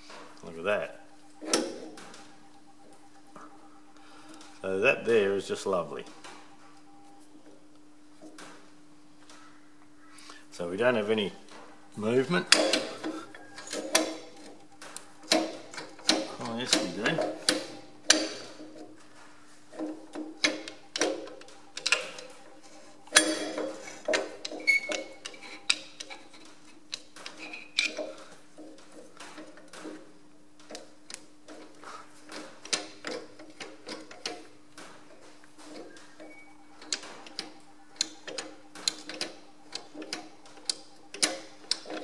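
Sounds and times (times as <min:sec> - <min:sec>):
steady low hum: 0:00.0 - 0:42.0
metal clicks and knocks: 0:10.8 - 0:19.0, 0:19.7 - 0:42.0.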